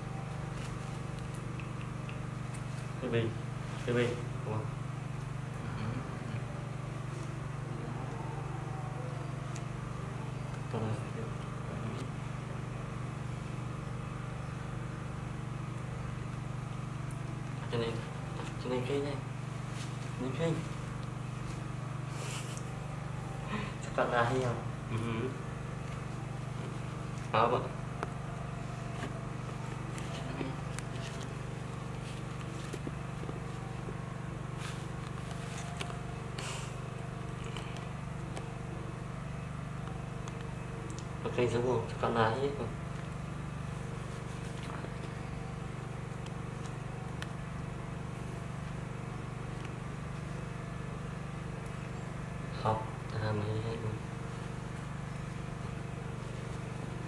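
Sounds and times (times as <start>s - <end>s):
low mechanical hum: 0.0s - 57.0s
soft rustles and pats: 19.5s - 21.7s.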